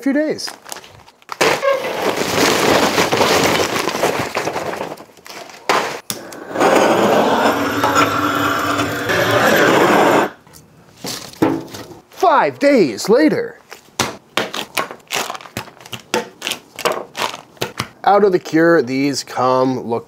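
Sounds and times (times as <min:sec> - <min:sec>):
gas torch roaring: 0:06.1 - 0:10.4.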